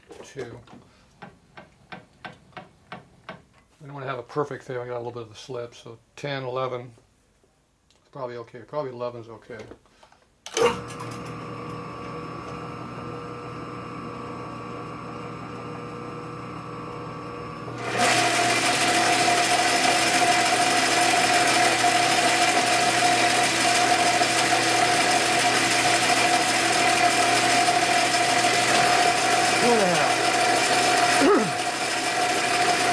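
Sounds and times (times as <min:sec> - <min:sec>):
lathe cutting whine: 0:17.8 - 0:32.9
lathe motor and gears running: 0:17.8 - 0:32.9.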